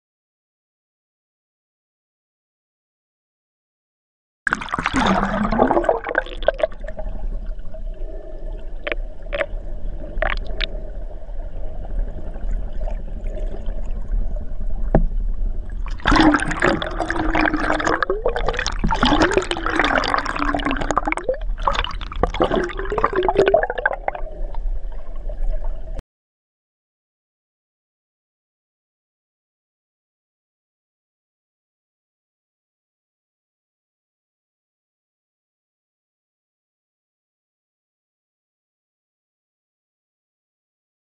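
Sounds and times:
muffled underwater bubbling: 4.5s - 26.0s.

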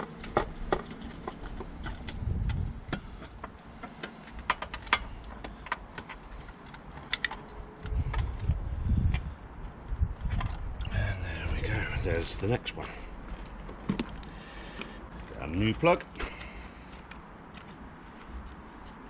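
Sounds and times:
dull low rumbles: 2.0s - 3.5s, 7.6s - 15.6s
hand tools clicking and clinking: 2.9s - 8.5s, 11.4s - 13.0s.

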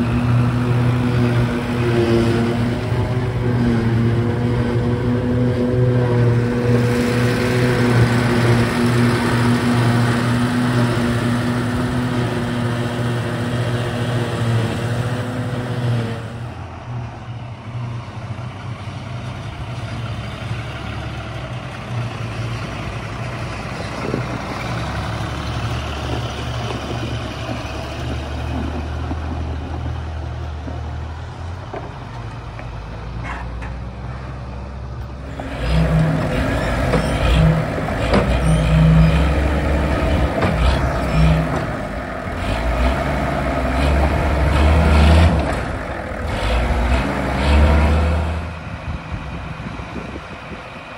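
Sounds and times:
forage harvester running: 0.0s - 16.6s, 35.1s - 50.9s
wheel loader engine revving: 0.0s - 17.2s, 18.0s - 32.4s, 35.0s - 50.9s
tractor humming: 0.0s - 50.9s.

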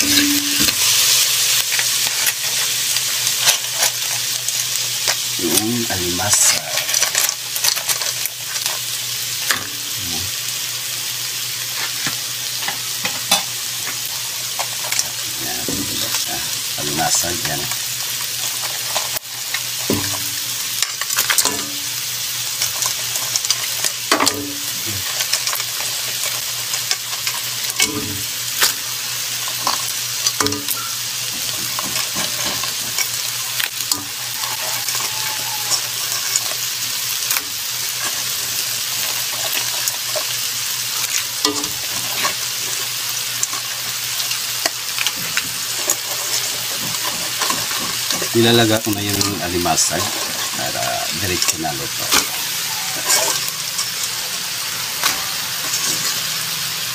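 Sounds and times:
seafood sizzling in a wok: 0.0s - 56.9s
shellfish clattering into wok: 18.3s - 21.8s.

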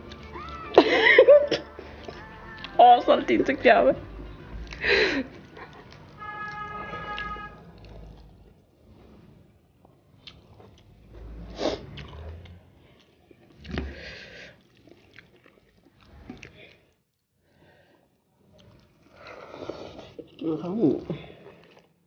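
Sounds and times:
chewing and lip-smacking: 0.0s - 0.9s, 1.5s - 2.8s, 4.4s - 8.7s, 9.8s - 11.1s, 11.8s - 17.2s, 18.4s - 22.0s.

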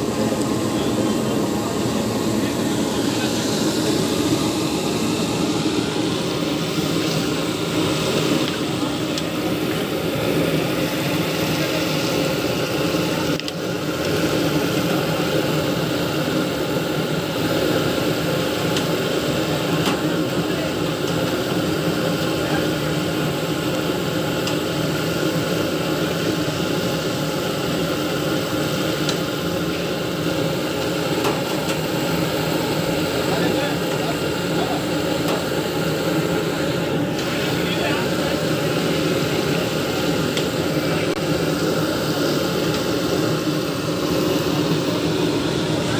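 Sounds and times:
fish sizzling in bubbling oil: 3.5s - 45.8s.

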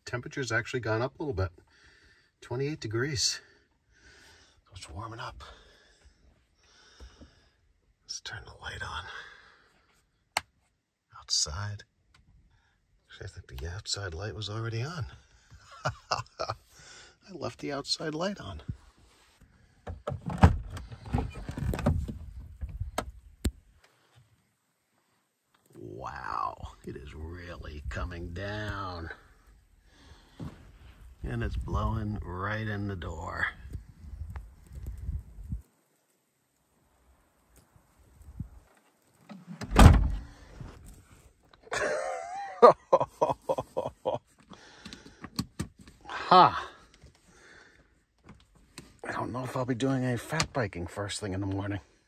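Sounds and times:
van door clicks and knocks: 39.7s - 40.2s.

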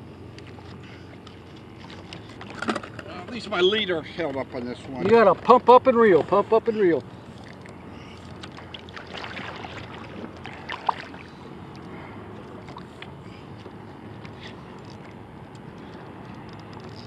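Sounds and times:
water lapping against kayak hull: 0.4s - 3.0s, 7.0s - 15.3s
light splashes and knocks: 0.4s - 3.1s, 7.4s - 11.8s.

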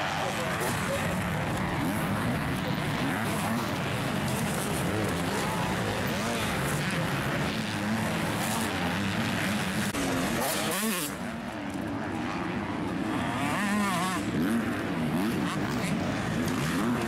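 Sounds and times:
motocross bike engines revving: 0.0s - 17.0s.

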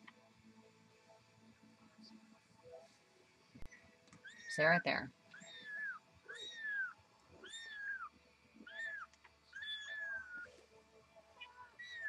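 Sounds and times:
kittens mewing: 5.3s - 10.5s.

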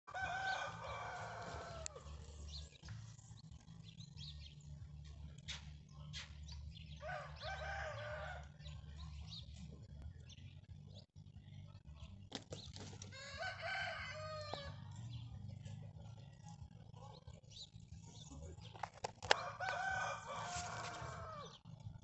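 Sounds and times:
rooster crowing: 0.1s - 2.1s, 7.0s - 8.5s, 13.1s - 14.8s, 19.3s - 21.6s.

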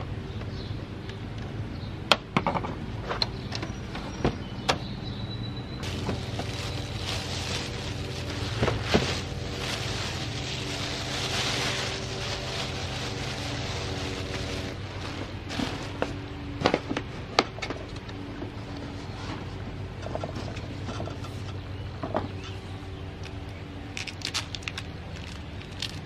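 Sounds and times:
low hum: 4.5s - 26.0s
plastic bag and bubble wrap rustling: 5.8s - 17.0s, 24.0s - 26.0s.

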